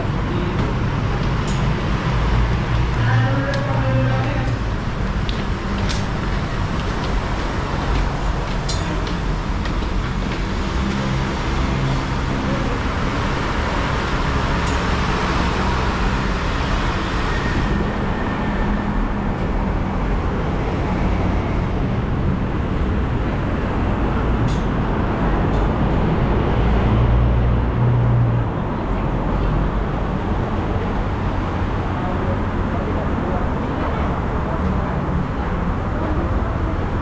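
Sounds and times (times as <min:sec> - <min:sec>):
road traffic: 0:00.0 - 0:37.0.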